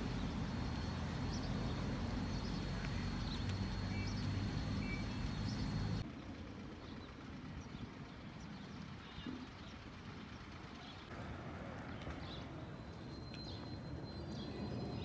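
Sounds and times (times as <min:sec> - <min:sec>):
car interior rumble: 0:00.0 - 0:06.0
street background: 0:00.0 - 0:15.0
faint high chirps: 0:12.3 - 0:15.0.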